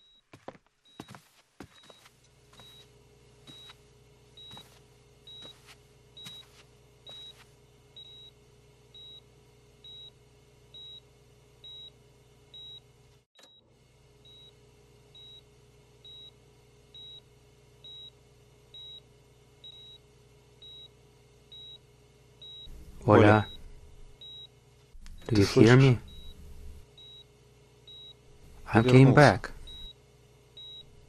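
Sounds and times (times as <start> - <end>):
heart monitor beeping: 0.0 - 7.4, 8.0 - 10.2, 10.8 - 11.0, 11.6 - 12.8, 14.2 - 14.6, 15.2 - 16.4, 17.0 - 17.2, 17.8 - 19.0, 19.6 - 20.0, 20.6 - 20.9, 21.5 - 24.5, 25.1 - 27.3, 27.9 - 28.2, 29.5 - 30.0, 30.6 - 31.0
low electrical hum: 0.0 - 31.0.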